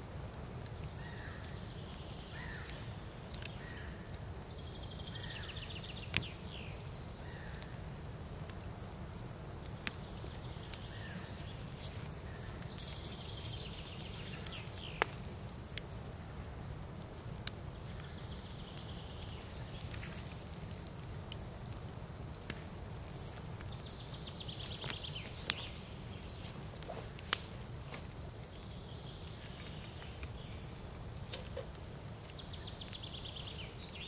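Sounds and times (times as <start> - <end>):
campfire crackling: 0.0 - 34.0
birds chirping: 10.0 - 15.2, 23.5 - 27.3, 28.4 - 30.8, 32.0 - 34.0.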